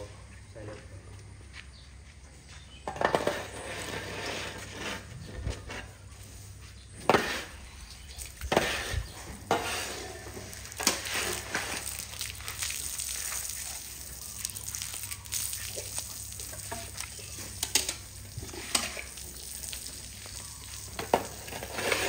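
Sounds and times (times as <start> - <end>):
metal shovel scraping concrete: 2.9 - 6.1, 7.0 - 11.9, 18.4 - 19.2, 21.0 - 22.0.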